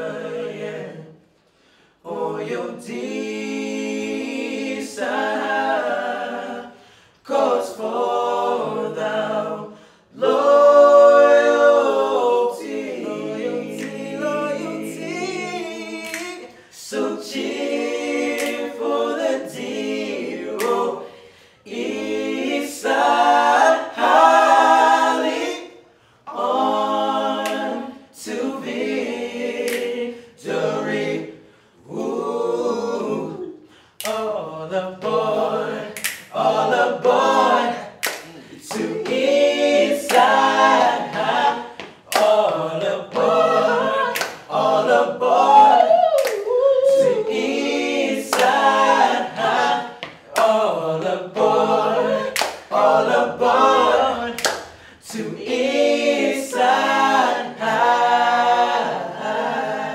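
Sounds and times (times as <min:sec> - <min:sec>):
male vocal group singing a cappella: 0:00.0 - 0:59.9
hand claps: 0:13.7 - 0:14.1, 0:16.0 - 0:16.6, 0:18.2 - 0:18.9, 0:20.6 - 0:20.9, 0:27.4 - 0:27.8, 0:29.6 - 0:30.0, 0:34.0 - 0:34.3, 0:35.9 - 0:36.5, 0:38.0 - 0:43.4, 0:44.0 - 0:44.6, 0:45.5 - 0:47.4, 0:48.3 - 0:48.8, 0:49.4 - 0:52.9, 0:54.3 - 0:55.6.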